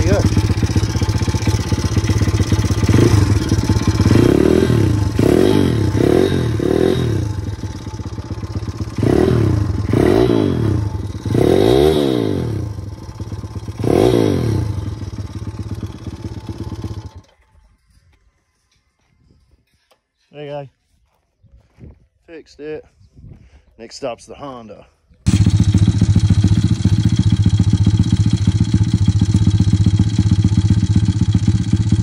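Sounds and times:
small motorbike engine revving: 0.0 - 17.6, 25.3 - 32.0.

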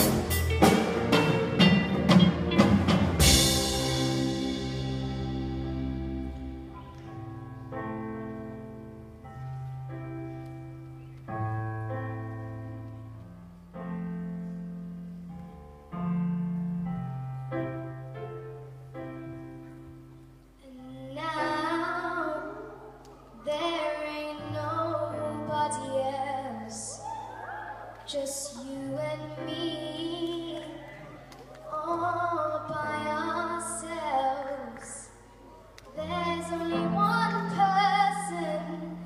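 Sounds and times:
low bass notes: 0.0 - 9.2
band playing slow chords: 0.0 - 26.9
boy singing with vibrato: 20.6 - 27.0, 28.1 - 35.2, 36.0 - 39.0.

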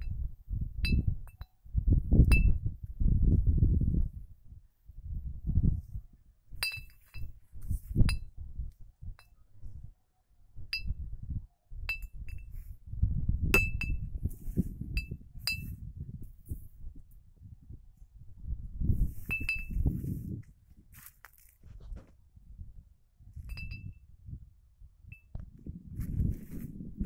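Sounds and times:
wind gusts rumbling: 0.0 - 6.2, 12.3 - 20.9, 25.4 - 27.0
glass bottle clinking: 6.6 - 7.3, 13.6 - 14.0, 19.3 - 19.8.

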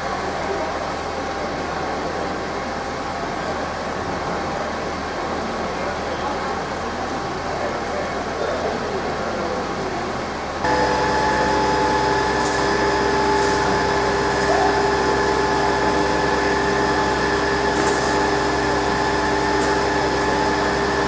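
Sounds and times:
machinery drone with hiss: 10.6 - 21.0.

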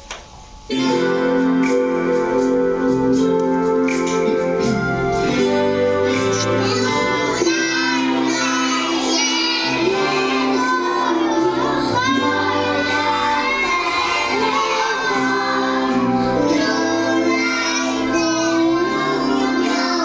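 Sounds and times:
instrumental backing music: 0.0 - 20.0
children singing a carol: 6.0 - 20.0.

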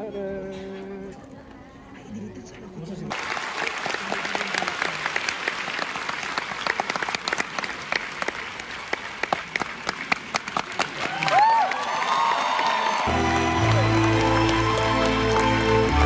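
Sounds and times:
audience applauding: 3.1 - 16.0
person whooping: 11.1 - 14.0.

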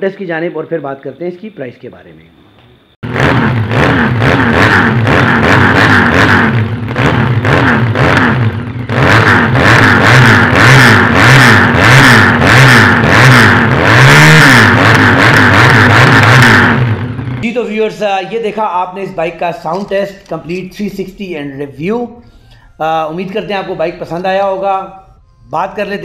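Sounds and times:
motorcycle engine revving: 3.0 - 17.4.

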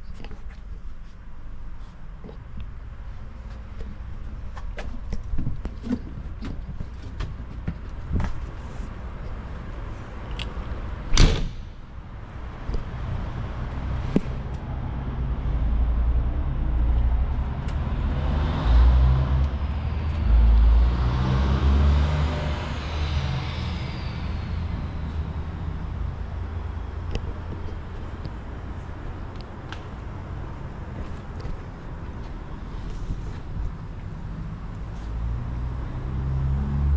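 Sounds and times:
low rumble: 11.6 - 31.8.

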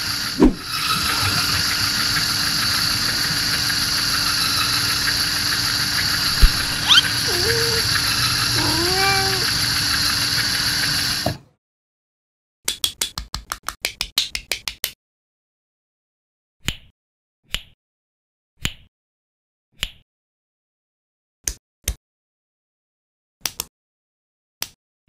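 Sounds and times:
toy electric motor whirring: 0.7 - 11.3
cat meow: 6.7 - 7.8, 8.6 - 9.5.

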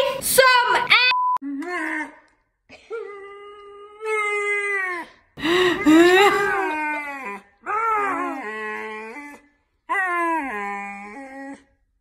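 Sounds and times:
puppy howling whines: 6.6 - 11.7.

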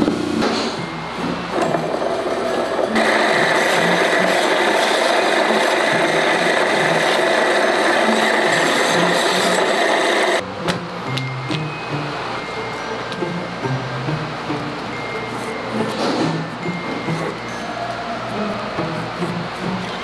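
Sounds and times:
skiving machine blade whining: 0.8 - 10.4.

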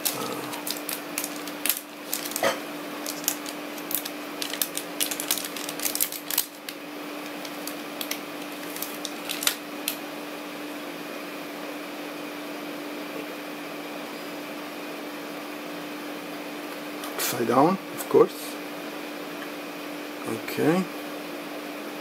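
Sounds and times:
plastic bag crinkling: 0.0 - 10.0
steady low hum: 0.0 - 12.1.

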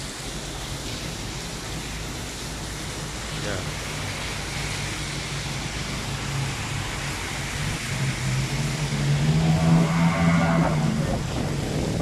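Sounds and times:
heavy rain: 0.0 - 12.0
strong wind: 1.0 - 12.0
car driving past on wet street: 3.8 - 12.0.

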